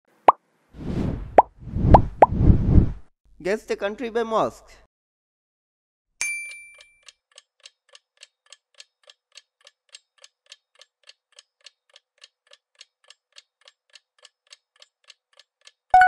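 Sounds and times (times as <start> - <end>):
bell-like ding: 6.2 - 7.0
clock ticking: 7.0 - 16.0.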